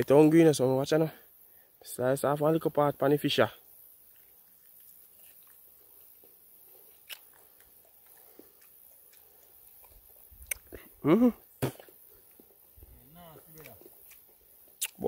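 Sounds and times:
person chewing: 4.1s - 12.9s, 13.6s - 15.0s
mouth clicks: 7.0s - 11.9s, 14.8s - 15.0s.

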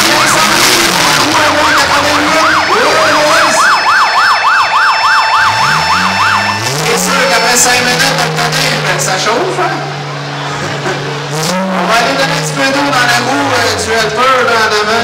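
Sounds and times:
yelp siren wailing: 0.0s - 10.4s
car engines revving: 0.0s - 15.0s.

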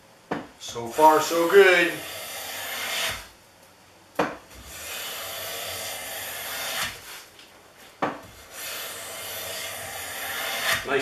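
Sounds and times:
hand plane cutting wood: 1.9s - 3.3s, 4.6s - 7.2s, 8.2s - 10.9s.

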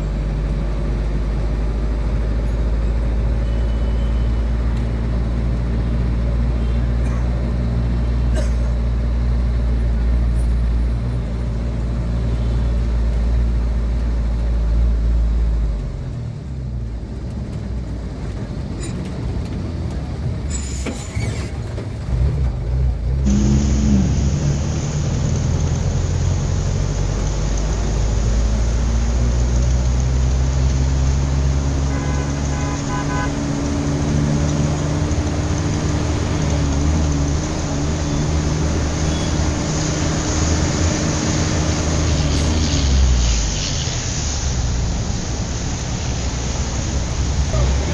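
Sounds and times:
traffic noise: 0.0s - 47.9s
car horn toots: 31.8s - 33.4s.

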